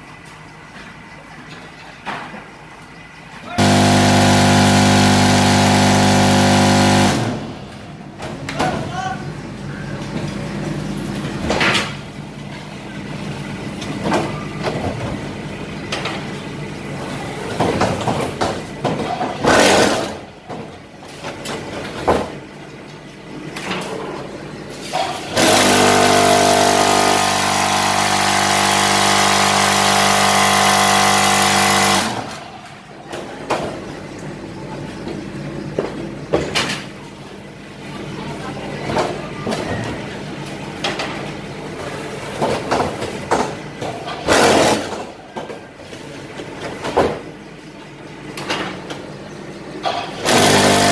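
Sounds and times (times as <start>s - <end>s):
loud steady vibrator hum: 2.4s - 17.2s, 24.3s - 33.1s
brick making machine clanking: 9.8s - 47.5s, 48.3s - 50.9s.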